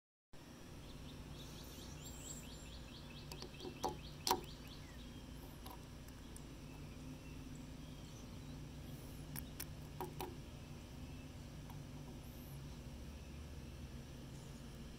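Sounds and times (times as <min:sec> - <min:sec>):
steady low background noise: 0:00.4 - 0:14.9
bird chirping: 0:00.7 - 0:14.9
sharp plastic clicks: 0:03.3 - 0:04.5, 0:09.3 - 0:10.4.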